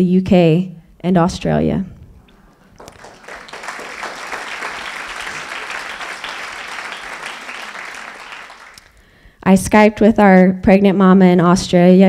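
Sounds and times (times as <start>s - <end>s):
audience applauding: 2.7s - 9.1s.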